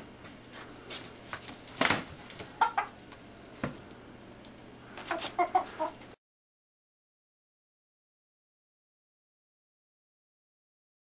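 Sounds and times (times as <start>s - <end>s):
rooster clucking: 2.4s - 3.0s, 5.0s - 6.2s.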